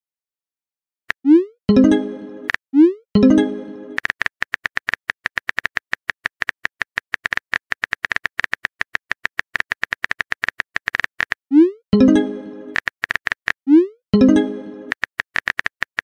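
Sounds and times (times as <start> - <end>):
phone keyboard typing clicks: 3.9 - 11.4, 14.9 - 16.0.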